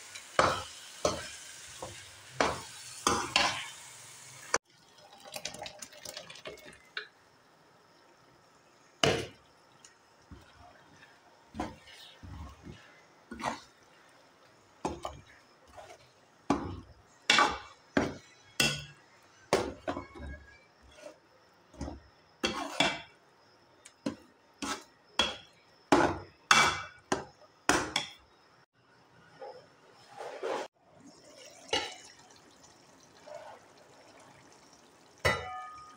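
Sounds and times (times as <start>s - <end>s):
spoon scraping a metal pot: 22.4s - 23.0s.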